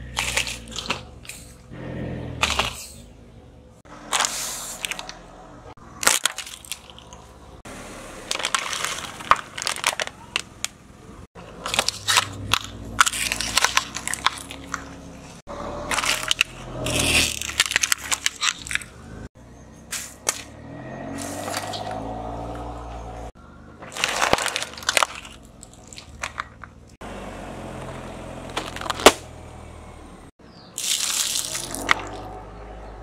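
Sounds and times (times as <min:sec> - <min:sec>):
plastic bottles crunching under tyre: 0:00.0 - 0:01.6, 0:04.0 - 0:05.2, 0:05.9 - 0:07.4, 0:08.2 - 0:10.8, 0:11.4 - 0:19.3, 0:21.1 - 0:22.6, 0:23.8 - 0:27.0, 0:27.6 - 0:29.5, 0:30.8 - 0:32.4.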